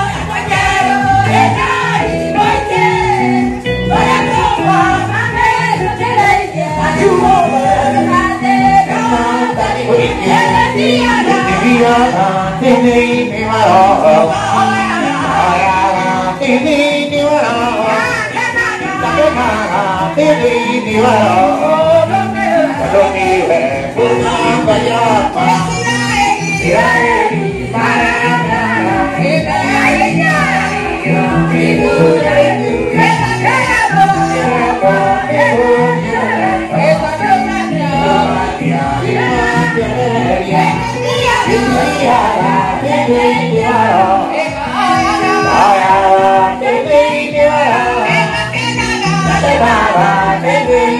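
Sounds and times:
accompaniment with held bass notes: 0.0s - 50.9s
man singing gospel through pa: 0.0s - 50.9s.

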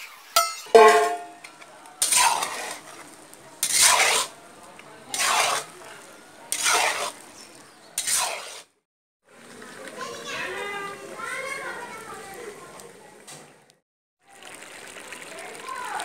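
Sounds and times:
metal spatula scraping wok: 0.0s - 8.8s.

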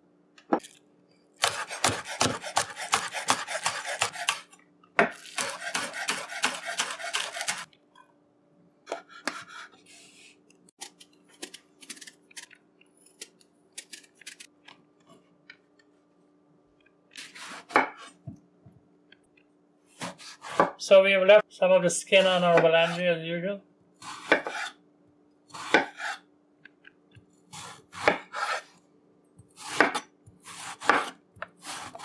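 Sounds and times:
knife cutting eggplant: 1.4s - 4.5s, 5.1s - 7.7s, 8.9s - 9.8s, 24.0s - 24.8s, 25.5s - 26.3s, 29.4s - 32.0s
knife chopping on wooden board: 1.4s - 7.7s, 20.0s - 20.8s, 24.0s - 24.7s, 25.6s - 26.2s, 27.5s - 28.6s, 29.6s - 32.0s.

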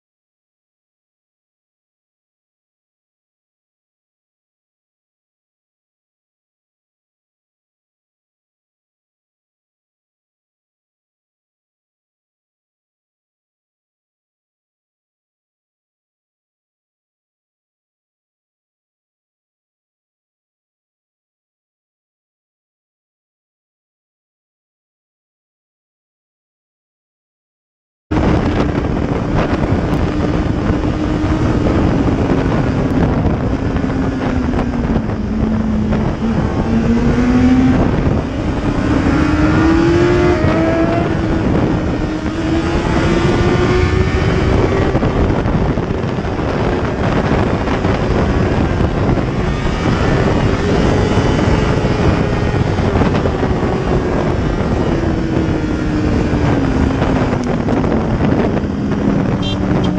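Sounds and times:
motorcycle engine revving: 28.1s - 59.9s
wind rushing on microphone: 28.1s - 59.9s.

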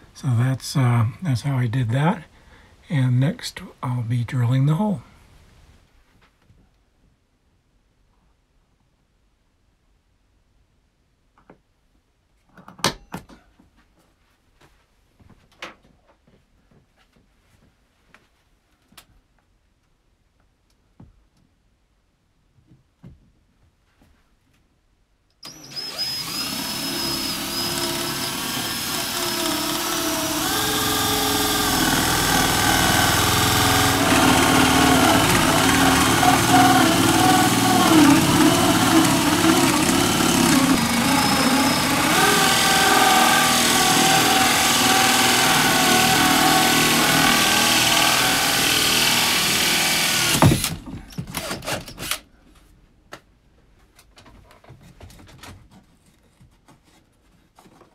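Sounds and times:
drill with hole saw cutting wood: 25.4s - 52.2s.

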